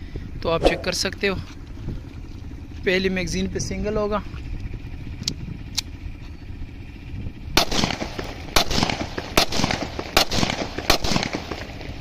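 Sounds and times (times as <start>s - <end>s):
pistol shots: 7.6s - 11.8s.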